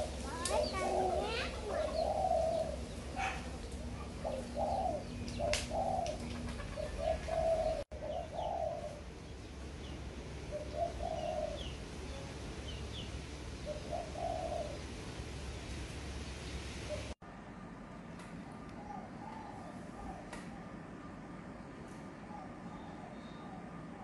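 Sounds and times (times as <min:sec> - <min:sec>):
doves cooing: 0:00.0 - 0:09.2, 0:10.3 - 0:12.8, 0:13.6 - 0:15.3, 0:18.5 - 0:21.4
small birds chirping: 0:00.0 - 0:17.2.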